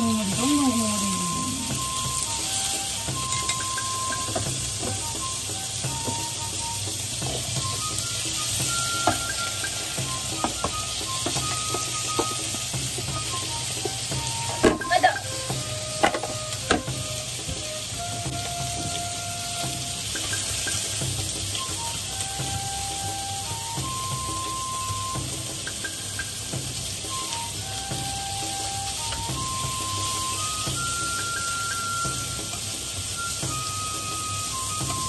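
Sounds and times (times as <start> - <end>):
meat and vegetables sizzling in a pan: 0.0 - 35.0.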